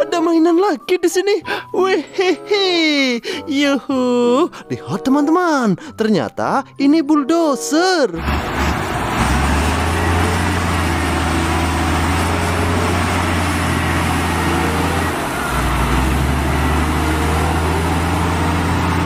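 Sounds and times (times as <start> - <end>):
bulldozer diesel engine running: 8.2 - 19.0.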